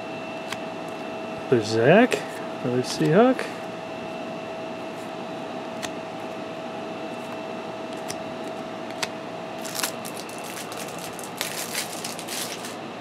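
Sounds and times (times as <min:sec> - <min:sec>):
background hum with thin whine: 0:00.0 - 0:13.0
cards clicking and rustling: 0:08.0 - 0:12.8.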